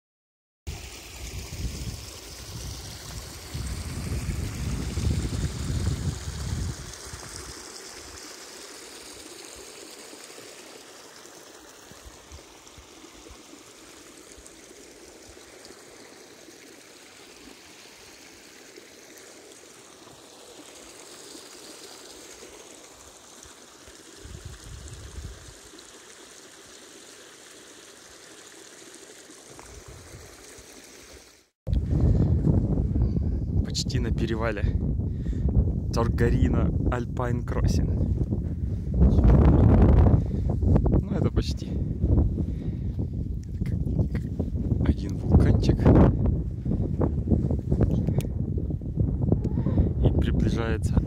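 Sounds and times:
wind rumble on microphone: 1.2 - 7.4, 24.2 - 25.6, 31.7 - 51.0
mountain stream rushing: 2.1 - 31.5.

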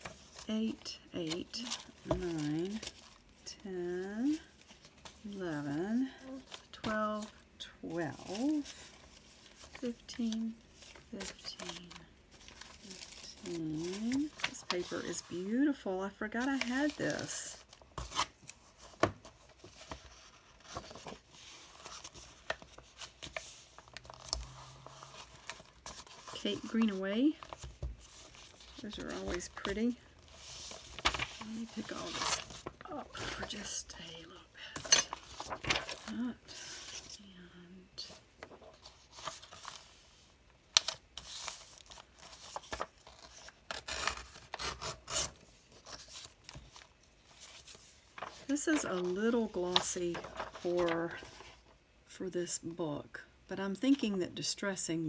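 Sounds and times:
paper sheets rustling: 16.4 - 34.1, 34.8 - 37.2, 38.0 - 51.7.

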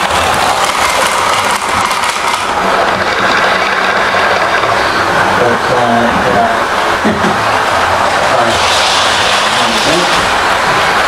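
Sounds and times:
model train wheels rattling on rails: 0.0 - 11.0.

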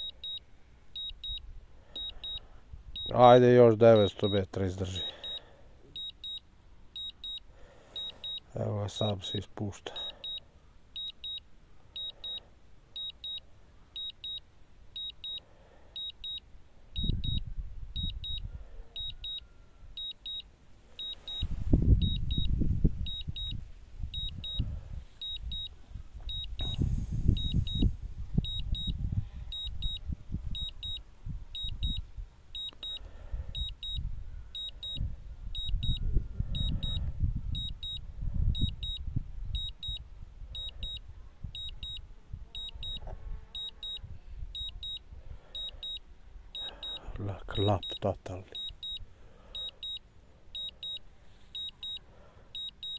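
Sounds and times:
high electronic beeps: 1.0 - 1.4, 2.0 - 2.4, 3.0 - 3.3, 3.9 - 5.4, 6.0 - 6.4, 7.0 - 9.2, 10.0 - 10.4, 11.0 - 11.4, 12.0 - 12.4, 17.0 - 17.4, 20.0 - 24.6, 25.2 - 25.7, 26.3 - 30.0, 30.6 - 31.0, 31.6 - 32.0, 32.6 - 33.0, 33.6 - 34.0, 34.6 - 35.0, 35.6 - 37.0, 37.6 - 38.0, 38.6 - 39.0, 39.6 - 40.0, 40.6 - 41.0, 41.6 - 42.0, 42.6 - 43.0, 43.6 - 44.0, 44.6 - 45.0, 45.6 - 46.0, 46.6 - 49.0, 49.6 - 50.0, 50.6 - 51.0, 51.6 - 52.0, 52.6 - 52.9.

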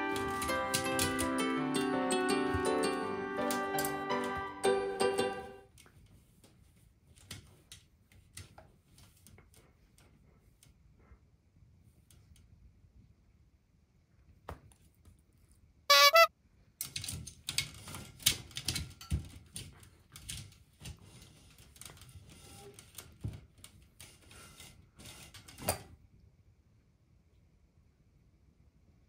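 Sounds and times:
toy squeak: 15.9 - 16.3.

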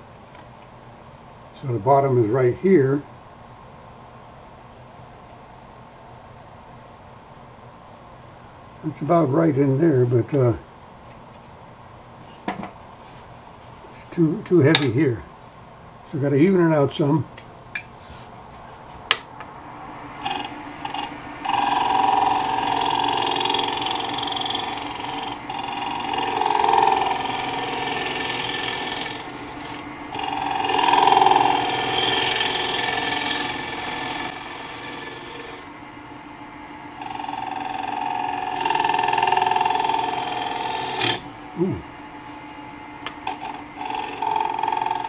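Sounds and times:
lathe tool scraping wood bowl: 20.1 - 35.7, 37.0 - 45.0.

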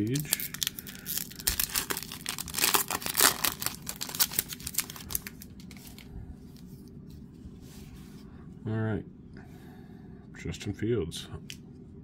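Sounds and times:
foil wrapper crinkling and tearing: 0.0 - 6.1
faint handling sounds: 4.2 - 8.7.

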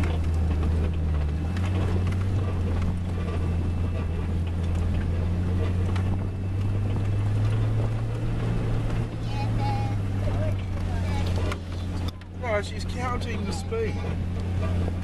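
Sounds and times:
vehicle engine droning: 0.0 - 15.0.

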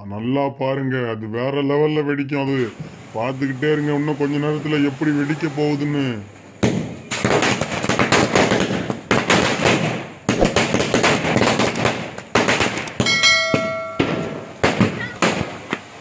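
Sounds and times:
firecrackers crackling: 2.5 - 16.0
bell-like chime: 13.0 - 14.6.

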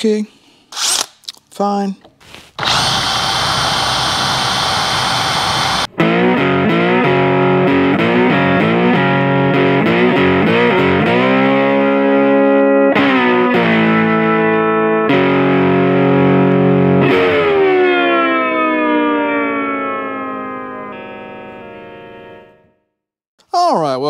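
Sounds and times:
power drill boring into metal: 2.6 - 5.9
distorted electric guitar music: 2.7 - 22.8.

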